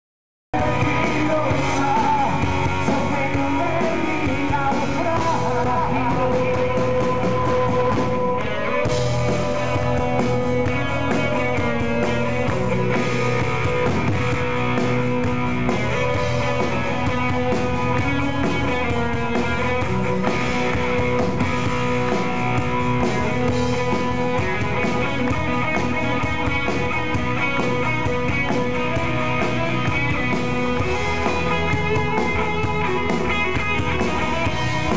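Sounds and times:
live rock band: 0.5 - 34.9
person singing: 0.6 - 13.3.

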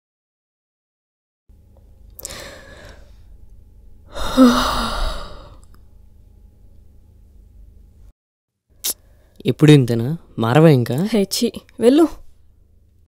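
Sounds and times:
person yawning: 4.1 - 5.7.

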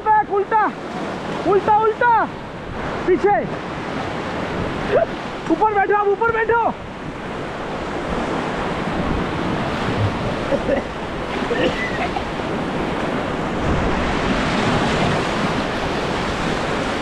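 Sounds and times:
whitewater rapids rushing: 0.0 - 17.0
wind buffeting microphone: 6.3 - 17.0.

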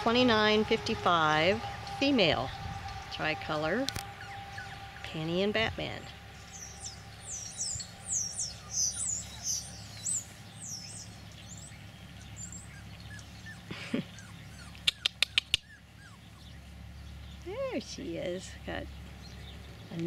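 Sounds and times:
songbird chirping: 0.0 - 20.0
sharp clicks: 14.7 - 15.7.

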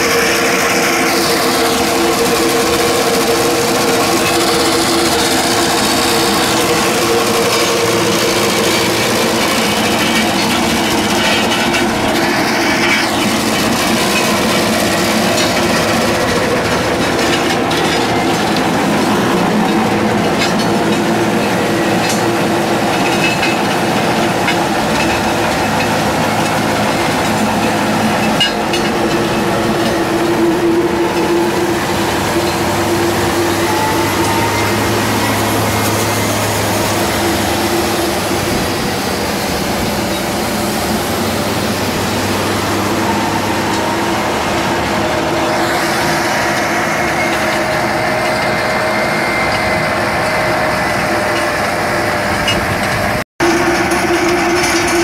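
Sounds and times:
tractor engine rumble: 0.0 - 55.0
stone crusher rattling: 0.2 - 38.6.

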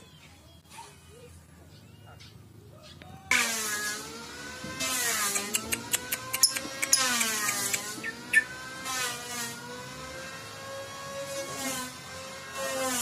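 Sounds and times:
humming drone: 3.2 - 13.0
sharp bird calls: 5.3 - 8.7.

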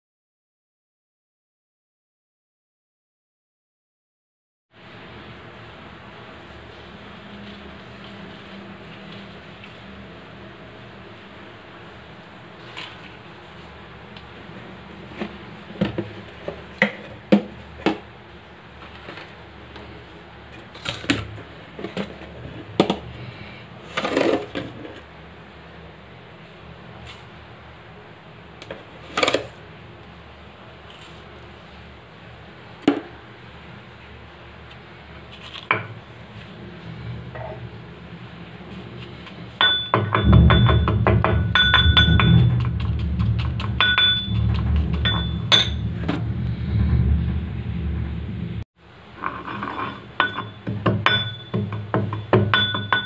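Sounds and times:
steel pestle clinking in mortar: 39.6 - 45.8, 49.2 - 53.0.

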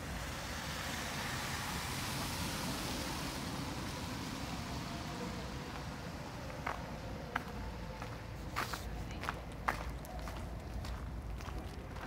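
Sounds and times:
car driving past on wet street: 0.0 - 8.7.

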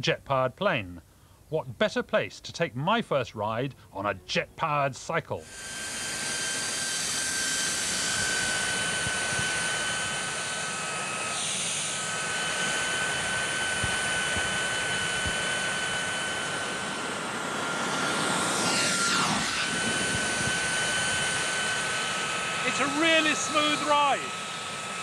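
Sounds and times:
small jet engine whine: 5.4 - 25.0.

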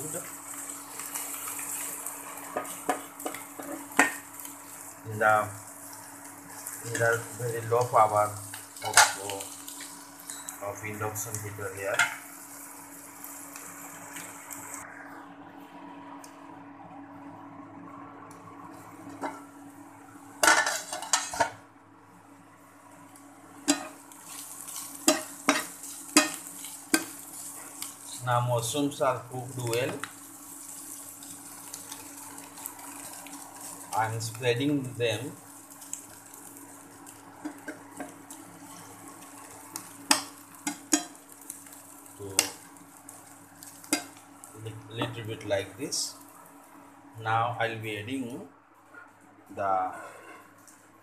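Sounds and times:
mushrooms frying: 0.0 - 14.9, 18.6 - 21.6, 22.2 - 48.4
induction cooker hum: 0.0 - 51.0
metal pan lid clattering: 20.4 - 21.5
spatula scraping in frying pan: 20.4 - 21.5, 23.6 - 28.2, 37.4 - 42.6, 49.8 - 50.6.

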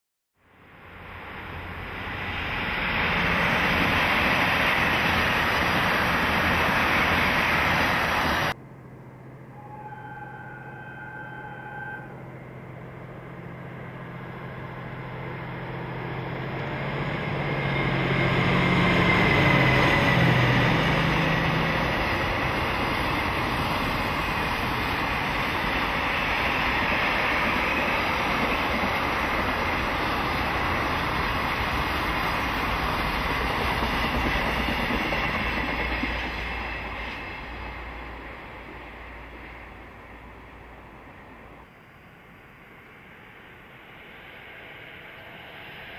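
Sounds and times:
diesel locomotive engine droning: 0.4 - 45.9
passenger train rushing past: 0.5 - 45.9
distant train horn: 9.4 - 13.0.

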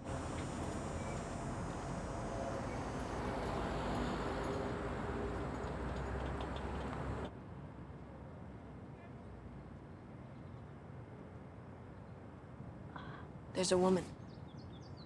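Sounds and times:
moving vehicle rumble and hiss: 0.0 - 10.0.

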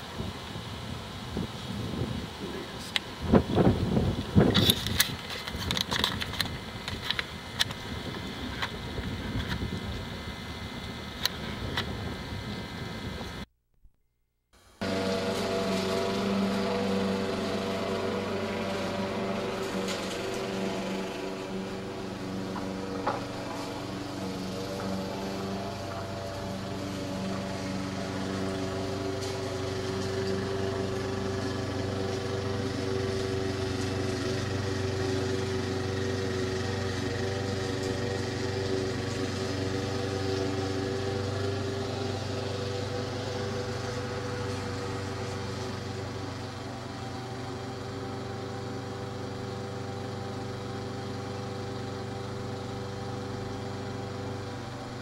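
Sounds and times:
small engine running: 14.8 - 55.0.

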